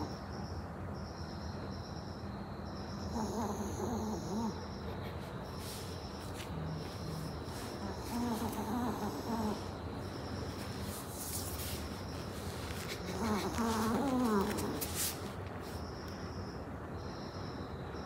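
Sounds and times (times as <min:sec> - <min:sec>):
faint high chirping: 0:00.0 - 0:18.0
puppy whimpering: 0:03.1 - 0:05.9, 0:07.1 - 0:09.8, 0:12.7 - 0:15.2.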